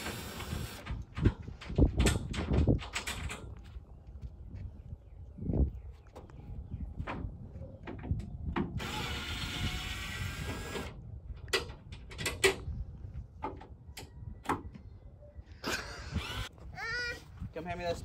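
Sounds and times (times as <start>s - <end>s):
power tool whirring: 0.0s - 0.8s, 8.8s - 10.9s, 16.0s - 16.5s
construction clicks and knocks: 0.0s - 3.6s, 7.0s - 9.0s, 10.5s - 12.7s, 13.4s - 14.8s.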